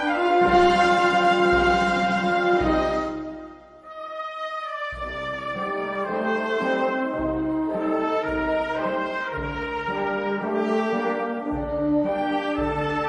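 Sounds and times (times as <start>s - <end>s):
brass band playing slow chords: 0.0s - 13.0s.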